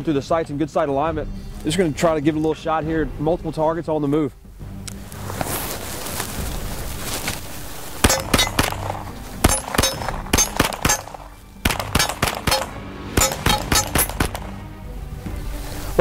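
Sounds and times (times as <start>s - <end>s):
gunshots: 8.0s - 14.6s.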